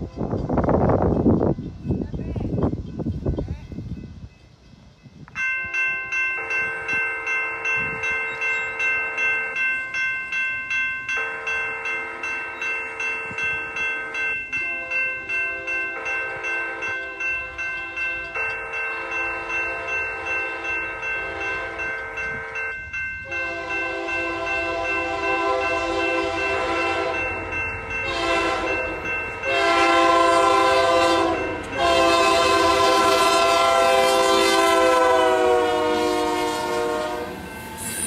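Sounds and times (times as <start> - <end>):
railroad crossing bells ringing: 0.0 - 38.0
train horn: 18.5 - 38.0.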